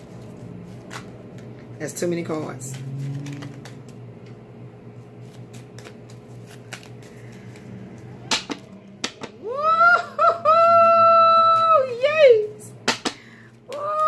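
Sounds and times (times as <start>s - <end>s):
cards rustling in hands: 0.0s - 4.0s, 4.9s - 8.2s
low room hum: 0.0s - 14.0s
person saying ooh: 9.4s - 12.5s, 13.7s - 14.0s.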